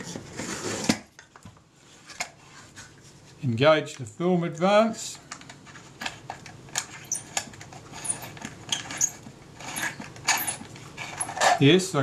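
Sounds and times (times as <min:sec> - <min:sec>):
winding key clicking and scraping: 0:06.7 - 0:11.4.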